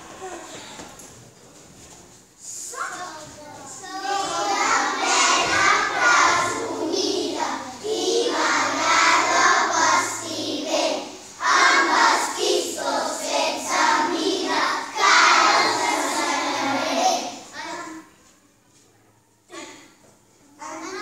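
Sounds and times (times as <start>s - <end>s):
children singing in unison: 3.9s - 17.5s.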